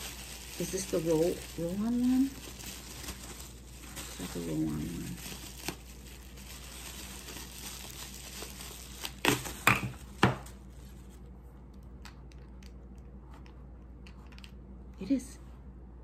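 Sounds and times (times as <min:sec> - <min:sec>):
sharp bubble wrap crackles: 0:00.0 - 0:11.2
bubble wrap crinkling: 0:00.0 - 0:12.8.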